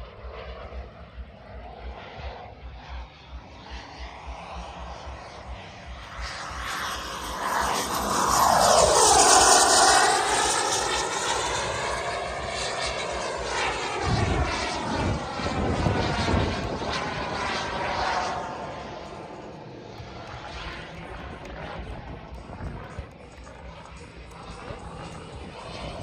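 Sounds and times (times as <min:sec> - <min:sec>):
model jet turbine flying past: 0:00.0 - 0:26.0.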